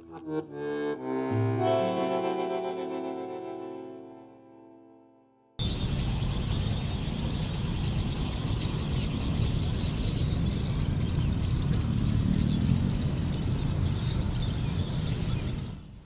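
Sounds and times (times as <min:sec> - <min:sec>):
small birds chirping: 0:05.6 - 0:16.0.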